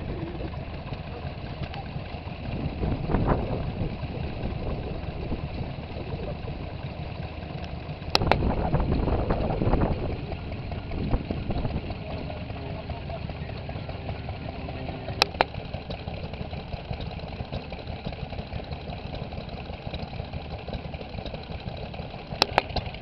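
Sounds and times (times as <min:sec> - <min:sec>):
louder engine sound: 0:00.0 - 0:23.0
small engines running: 0:00.0 - 0:23.0
sharp click: 0:08.1 - 0:08.4, 0:22.4 - 0:22.8.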